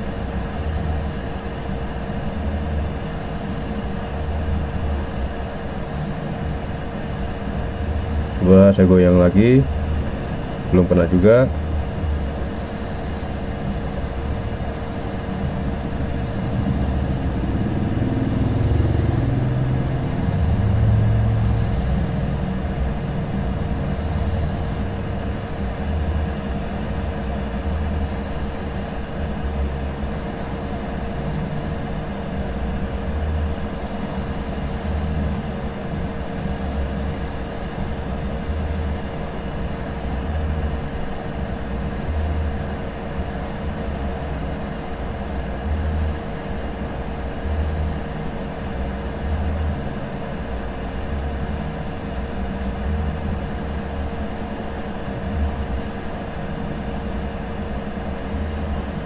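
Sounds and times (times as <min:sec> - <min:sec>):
constant hum: 0:00.0 - 0:59.0
hot air blower rushing: 0:01.0 - 0:43.2
low uneven rumble: 0:11.3 - 0:26.3.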